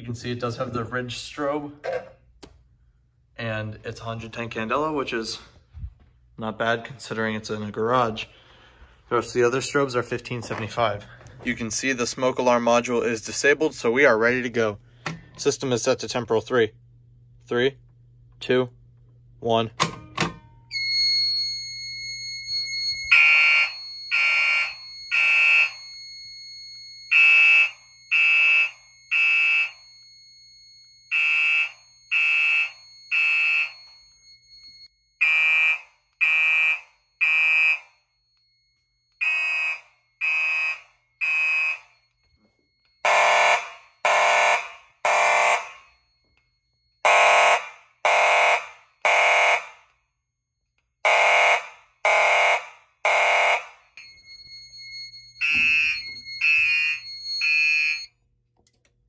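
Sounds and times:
fire alarm horn blasts: 20.7 - 50.2, 50.9 - 58.3.

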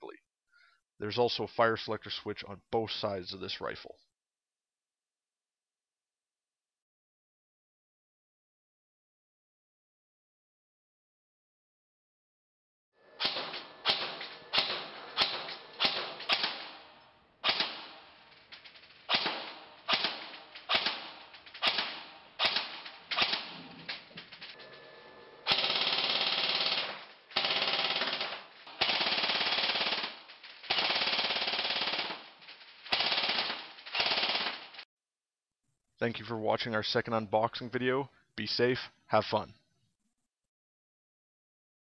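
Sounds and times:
airsoft rifle firing: 13.1 - 34.8.

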